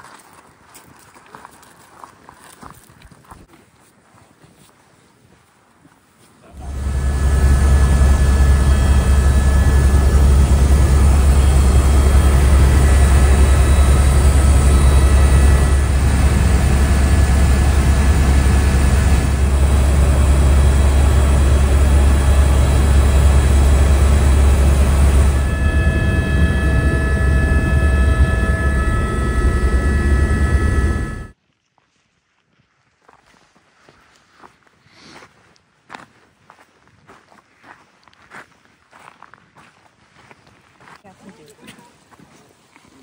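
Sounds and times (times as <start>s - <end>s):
helicopter engine and rotor drone: 6.5s - 31.4s
high whining tones: 6.5s - 31.4s.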